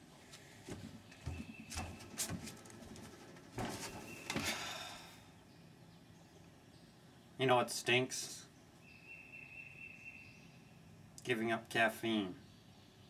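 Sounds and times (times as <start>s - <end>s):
shuffling: 0.2s - 4.6s
knocks and thumps on wooden deck: 0.7s - 4.6s.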